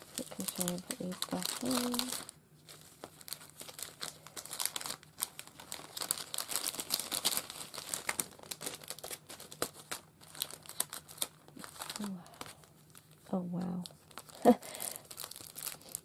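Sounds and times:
cellophane bag crinkling: 0:00.0 - 0:16.0.

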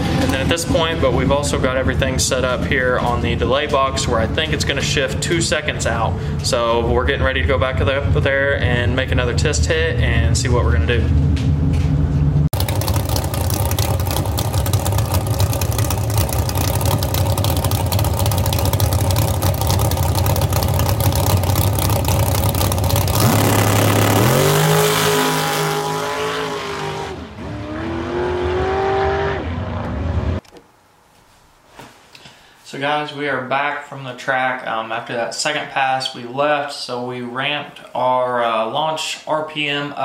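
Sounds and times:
drag racing car engine revving: 0:12.6 - 0:30.4.

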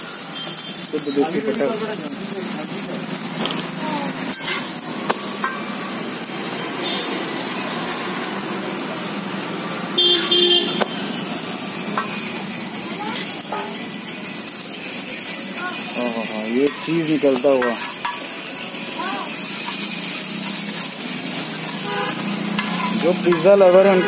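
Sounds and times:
flatbread sizzling on a griddle: 0:00.0 - 0:24.0
spatula scraping and tapping griddle: 0:03.3 - 0:06.4, 0:10.2 - 0:13.9, 0:15.8 - 0:24.0
vehicle horn honking: 0:06.8 - 0:07.2, 0:10.0 - 0:11.2, 0:21.8 - 0:22.3.

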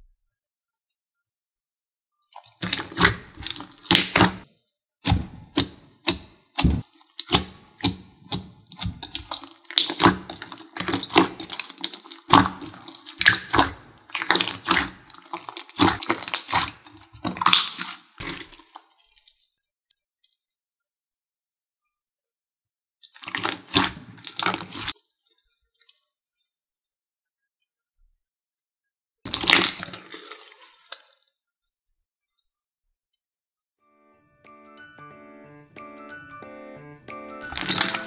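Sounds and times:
slime squelching: 0:02.4 - 0:18.9, 0:23.1 - 0:25.0, 0:29.3 - 0:31.1, 0:37.4 - 0:38.0.

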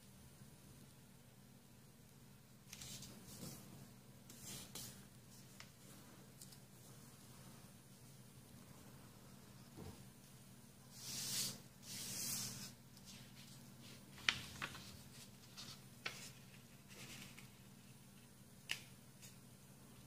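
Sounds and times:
paper rustling: 0:11.0 - 0:17.9.

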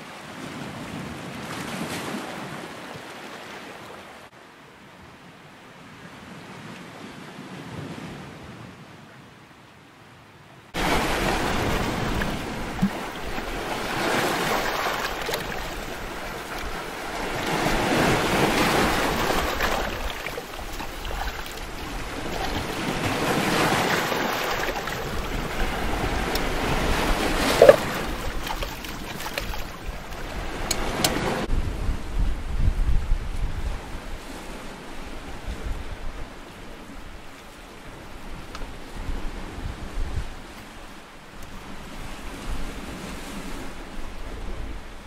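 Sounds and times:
sea surf breaking over rocks: 0:10.8 - 0:31.8
metal mug knocking on rock: 0:27.5 - 0:27.9.

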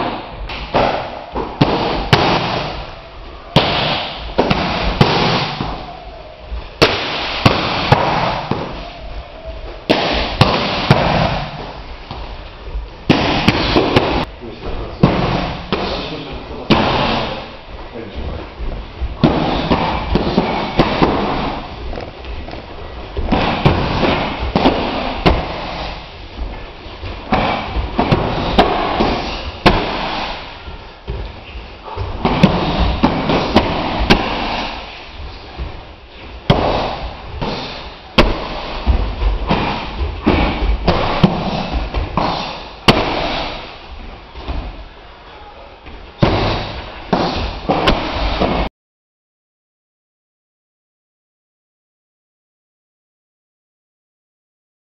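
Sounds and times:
strikes hitting kick shield: 0:00.0 - 0:02.8, 0:03.6 - 0:05.9, 0:09.9 - 0:11.6, 0:36.5 - 0:43.7, 0:46.2 - 0:48.7.

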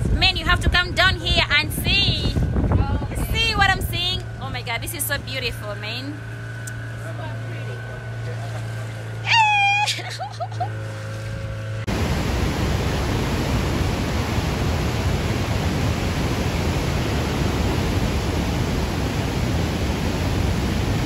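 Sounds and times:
boat motor humming: 0:00.0 - 0:21.0
river rapids rushing: 0:11.9 - 0:21.0.

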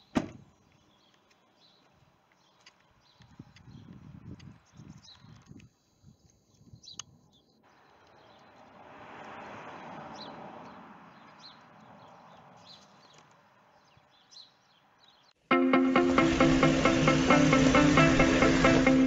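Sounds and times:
small birds chirping: 0:00.0 - 0:08.8, 0:10.1 - 0:15.4
passing traffic: 0:07.7 - 0:19.0
loud music: 0:15.5 - 0:19.0.

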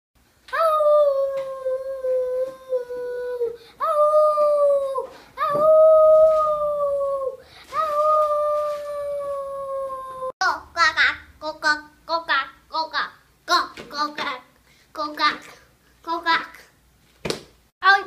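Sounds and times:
child imitating wolf howl: 0:00.5 - 0:10.4.

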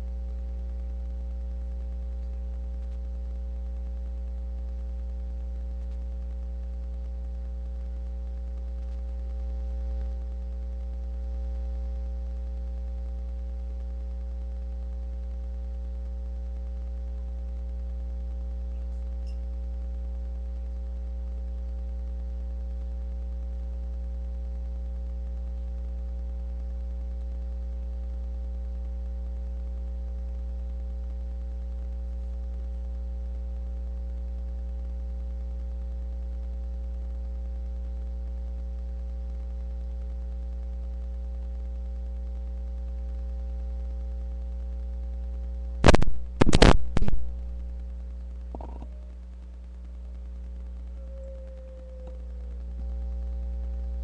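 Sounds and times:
faint steady tones: 0:00.0 - 0:54.0
low electrical hum: 0:00.0 - 0:54.0.

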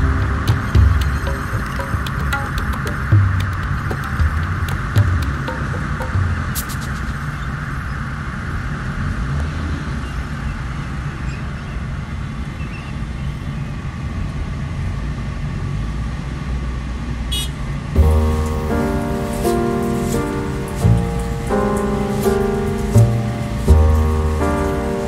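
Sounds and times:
car engine rumble: 0:00.0 - 0:09.3, 0:17.8 - 0:25.0.

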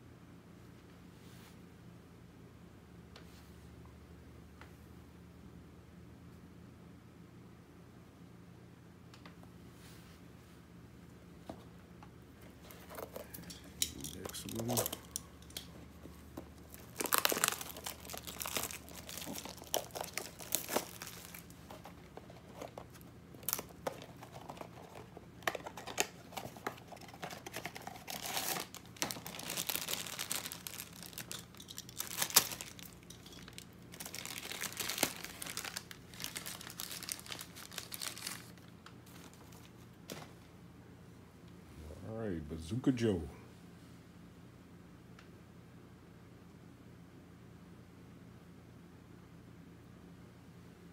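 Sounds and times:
packaging tearing and crinkling: 0:12.8 - 0:15.8, 0:16.6 - 0:39.7.

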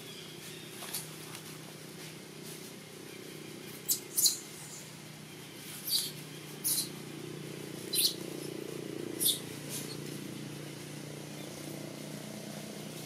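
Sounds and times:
steady low hum: 0:00.0 - 0:13.0
high-pitched animal squeaks: 0:03.9 - 0:04.8, 0:05.8 - 0:07.0, 0:07.9 - 0:08.2, 0:09.2 - 0:10.1.

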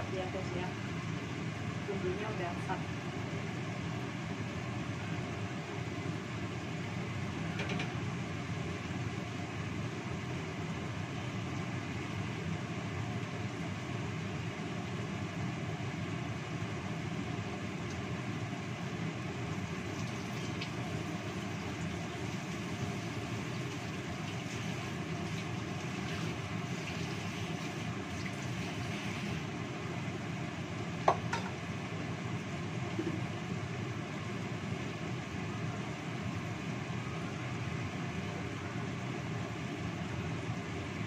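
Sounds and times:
sauce simmering: 0:08.1 - 0:31.0.

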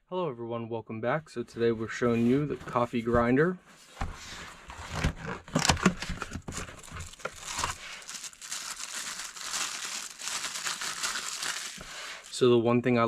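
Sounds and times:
plastic bag crinkling: 0:05.6 - 0:12.4.

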